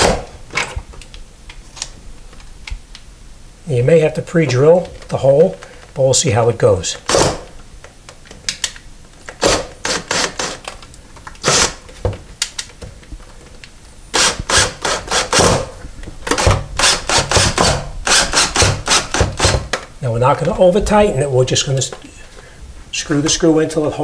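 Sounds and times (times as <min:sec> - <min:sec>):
cordless drill driving screw into metal: 0:07.0 - 0:07.5, 0:09.4 - 0:10.8, 0:11.4 - 0:11.8, 0:14.1 - 0:15.7, 0:16.3 - 0:19.8.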